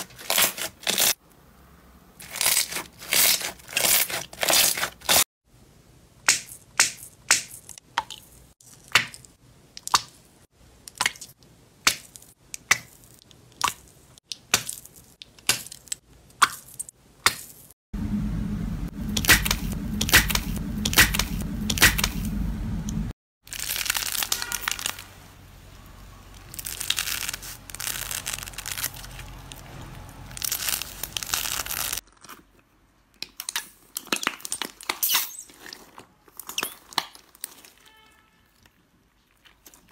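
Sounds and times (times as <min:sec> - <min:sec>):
crackling and tearing skin: 0:02.2 - 0:05.3, 0:23.5 - 0:25.1, 0:26.3 - 0:29.7, 0:30.3 - 0:32.7, 0:33.4 - 0:37.9
low hum: 0:18.0 - 0:23.2
crinkling and crackling: 0:23.4 - 0:39.9.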